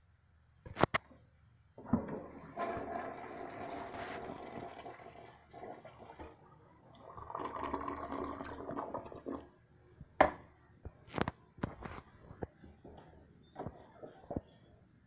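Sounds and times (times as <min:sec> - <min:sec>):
toilet flushing water rushing: 0:01.8 - 0:09.5.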